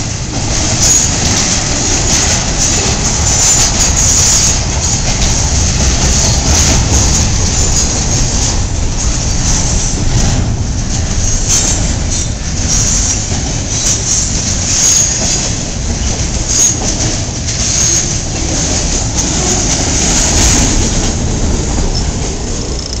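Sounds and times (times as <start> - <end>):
freight train wheels clattering: 0.0 - 23.0
high-pitched wheel squeals: 11.2 - 15.5, 16.5 - 16.9, 17.6 - 18.2.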